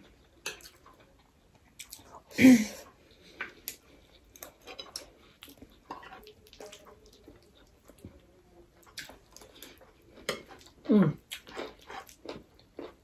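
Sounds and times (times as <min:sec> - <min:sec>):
chewing and lip smacks: 0:01.7 - 0:02.2, 0:03.3 - 0:08.2, 0:08.8 - 0:13.0.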